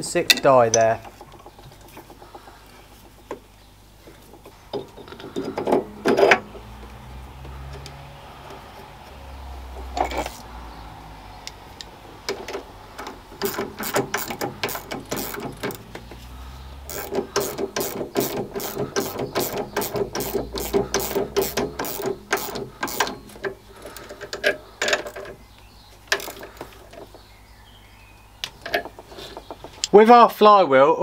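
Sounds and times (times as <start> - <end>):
ratchet wrench clicking: 13.4 - 15.8, 16.9 - 24.2.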